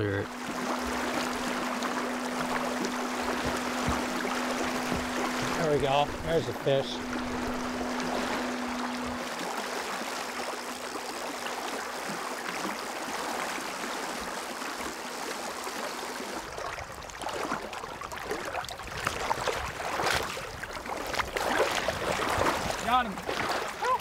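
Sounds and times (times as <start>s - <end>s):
river water rushing: 0.0s - 16.7s
faint steady hum: 0.0s - 18.6s.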